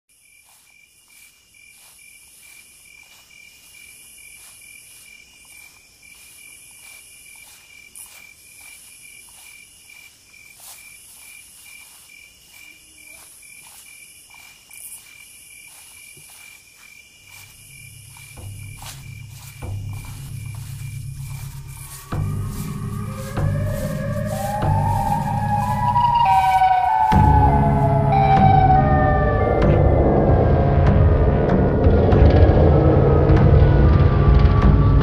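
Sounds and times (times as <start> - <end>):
crickets chirping: 0.1 - 30.8
low rumble: 27.1 - 35.0.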